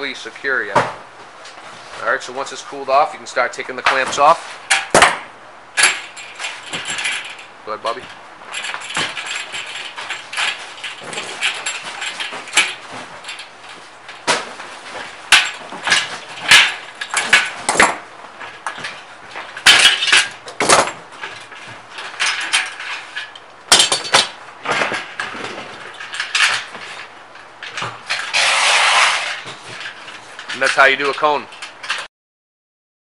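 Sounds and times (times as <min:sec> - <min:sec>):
metal clamps clanking and clicking: 0:05.8 - 0:32.1.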